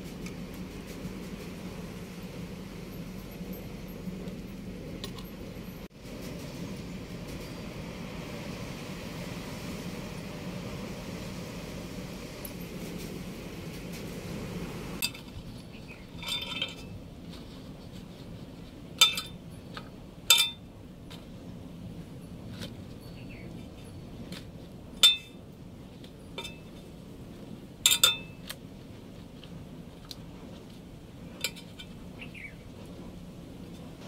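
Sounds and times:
clinks on metal cooking pot: 19.0s - 19.3s, 20.3s - 20.6s, 25.0s - 25.4s, 27.8s - 28.4s.

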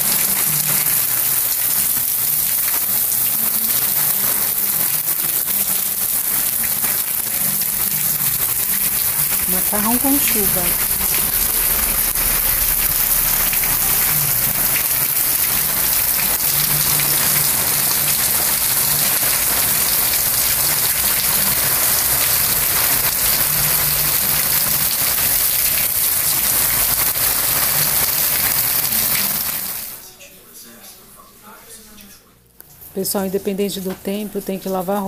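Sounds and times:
heavy rain splashing on pavement: 0.0s - 30.0s.

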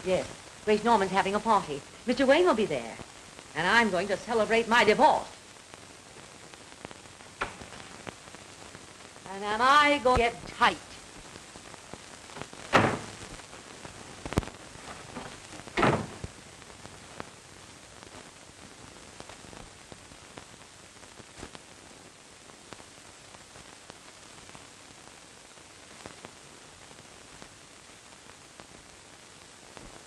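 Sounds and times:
film soundtrack hiss and crackle: 0.0s - 30.0s
door shutting thud: 12.7s - 13.1s, 15.2s - 16.2s.

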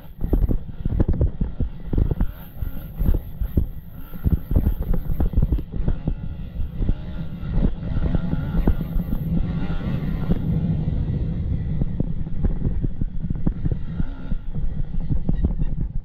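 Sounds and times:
motorcycle engine revving: 0.0s - 16.0s
wind buffeting microphone: 0.0s - 16.0s.

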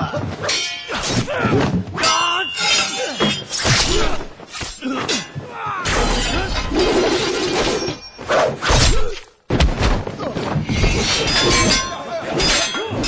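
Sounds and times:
swords clashing: 0.4s - 9.3s, 10.7s - 13.0s
men yelling: 0.9s - 3.4s, 4.9s - 6.4s.

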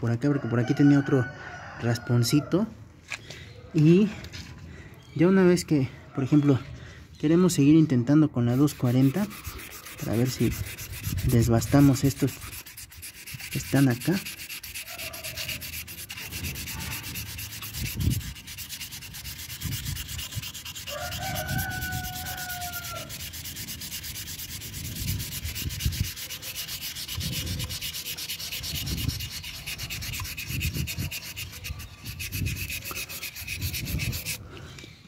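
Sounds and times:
sandpaper rasping on metal: 8.4s - 34.4s.

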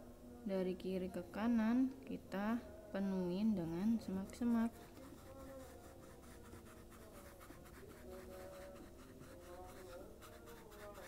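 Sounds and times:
marker scratching on canvas: 4.4s - 11.0s.

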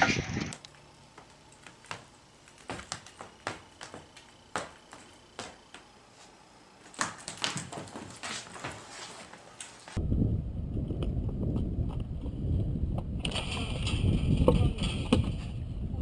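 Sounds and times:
dog steps on hardwood floor: 6.9s - 9.8s.

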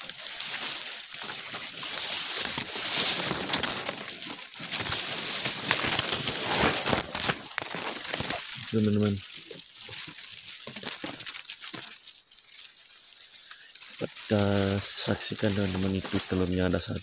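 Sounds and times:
grass stems rustling and crackling: 0.0s - 17.0s.

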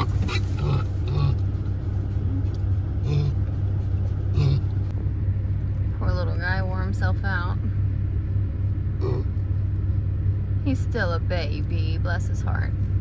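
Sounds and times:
piglet grunting: 0.0s - 1.5s, 3.0s - 3.5s, 4.3s - 4.8s, 9.0s - 9.4s
vehicle engine rumble: 0.0s - 13.0s.

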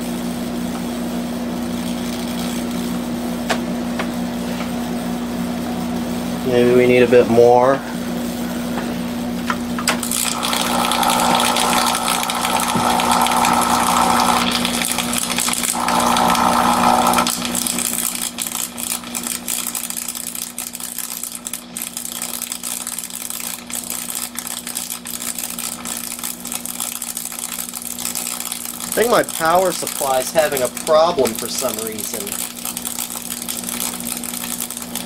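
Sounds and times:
power supply humming and buzzing: 0.0s - 35.0s
electrical crackling: 10.0s - 35.0s.

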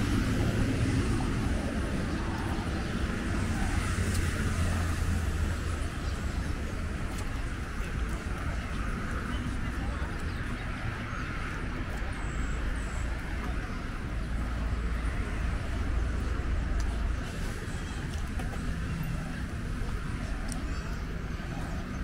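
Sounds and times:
low traffic rumble: 0.0s - 22.0s.

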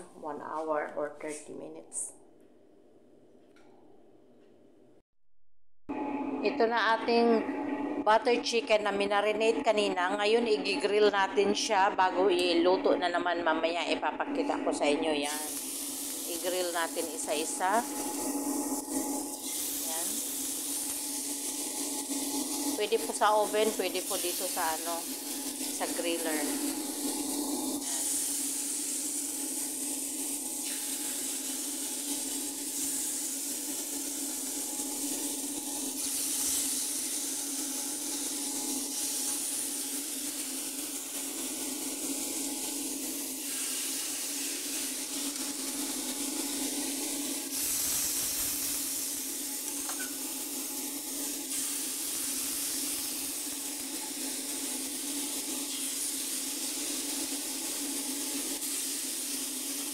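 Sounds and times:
low hum: 5.9s - 15.2s
chicken sizzling on a grill: 15.3s - 59.9s.

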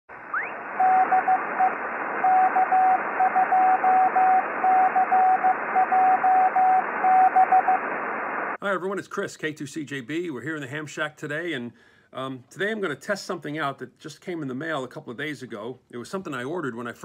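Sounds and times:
radio static hiss: 0.1s - 8.6s
rising chirp: 0.3s - 1.8s.

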